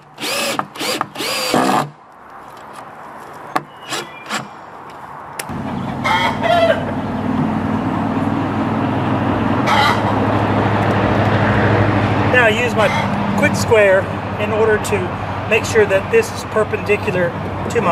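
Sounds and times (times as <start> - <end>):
cordless drill driving screw: 0.0 - 1.9
squawk-like call: 9.7 - 10.0.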